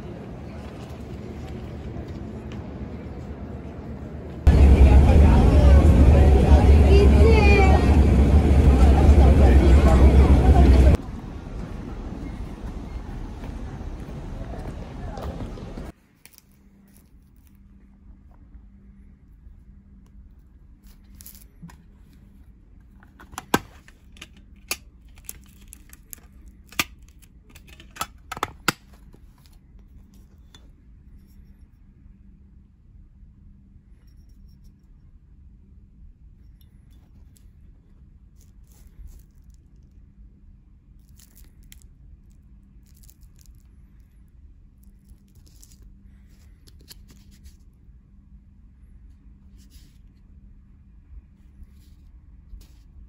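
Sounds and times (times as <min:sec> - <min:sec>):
low steady hum: 0:00.0 - 0:53.0
plastic and cardboard crinkling: 0:22.9 - 0:29.6.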